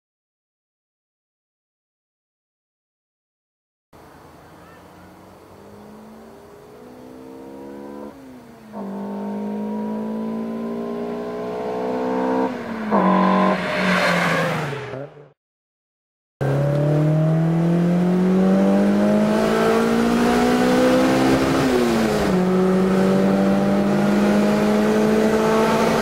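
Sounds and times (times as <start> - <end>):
car accelerating and passing: 4.0 - 15.4, 16.4 - 26.0.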